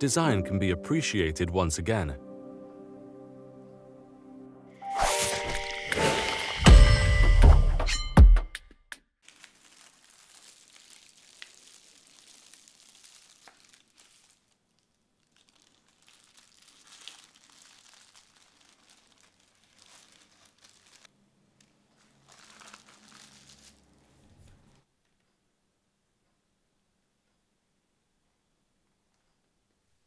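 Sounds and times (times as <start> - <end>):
plastic packaging rustling: 9.2 - 24.8.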